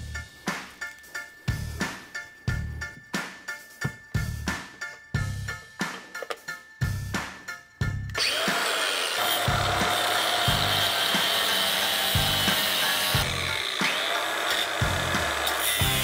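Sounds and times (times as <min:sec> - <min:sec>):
background music with beat: 0:00.0 - 0:08.6
angle grinder cutting metal: 0:08.2 - 0:16.0.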